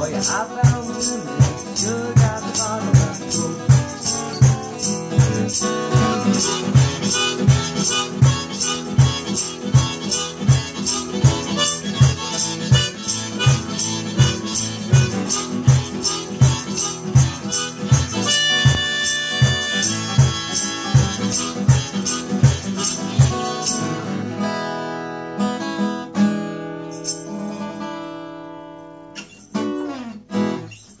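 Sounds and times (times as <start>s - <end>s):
harmonica: 0.0s - 24.5s
acoustic guitar: 0.0s - 31.0s
steady low beat: 0.6s - 23.5s.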